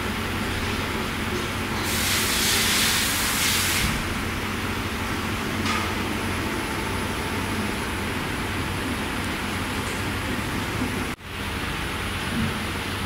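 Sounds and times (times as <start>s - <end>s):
loud hiss: 1.8s - 4.2s.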